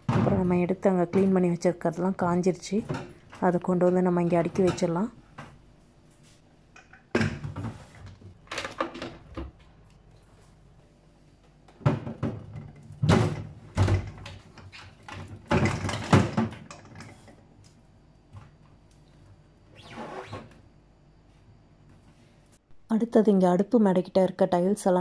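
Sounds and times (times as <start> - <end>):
plastic appliances knocking: 11.8 - 17.0.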